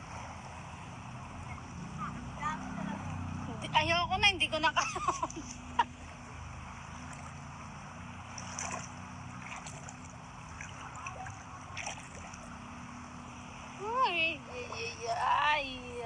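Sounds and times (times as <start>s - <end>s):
sea water lapping and splashing: 4.8s - 16.0s.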